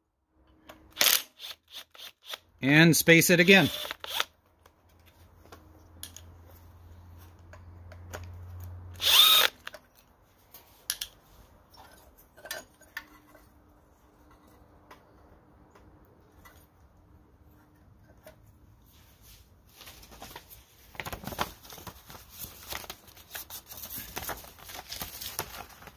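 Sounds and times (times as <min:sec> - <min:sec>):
power drill whirring: 0:00.9 - 0:02.4, 0:03.4 - 0:04.3, 0:09.0 - 0:09.7
clicks of bolts being handled: 0:04.4 - 0:06.4, 0:09.6 - 0:15.2.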